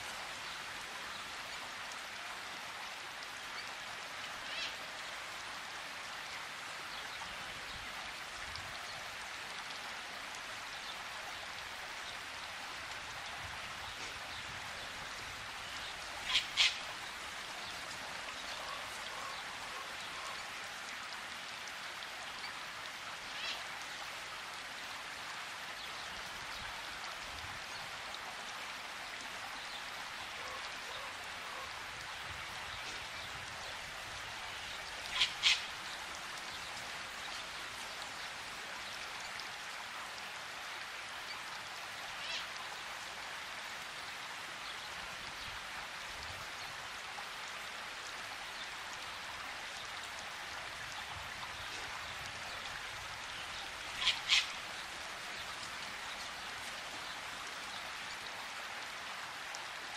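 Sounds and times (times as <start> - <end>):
rain hiss: 0.0 - 59.9
sharp bird calls: 35.1 - 35.6, 54.0 - 54.5.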